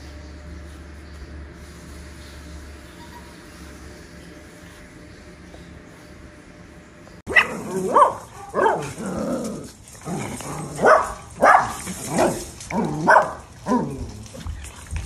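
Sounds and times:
puppies barking and yapping: 7.3s - 15.0s.

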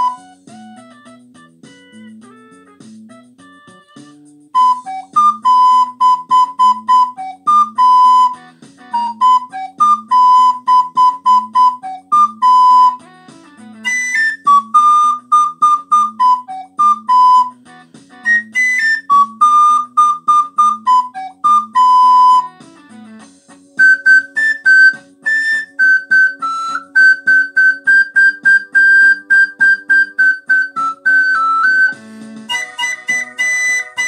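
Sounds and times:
backing track: 0.0s - 34.0s
recorder playing a melody: 0.0s - 34.0s.

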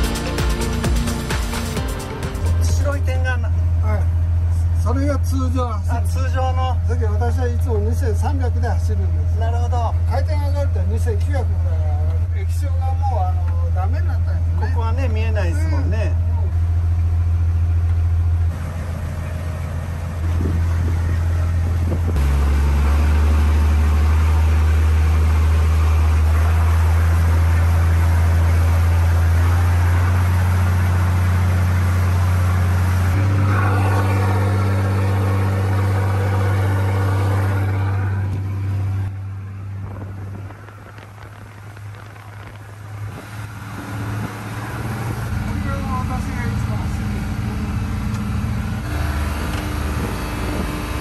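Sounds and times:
boat diesel engine drone: 0.0s - 51.0s
rush of boat wake: 18.5s - 51.0s.

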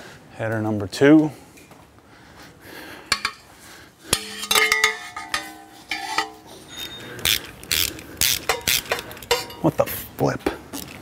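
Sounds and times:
metal scraping strokes: 4.1s - 9.6s
metal tools clinking: 4.1s - 9.8s.

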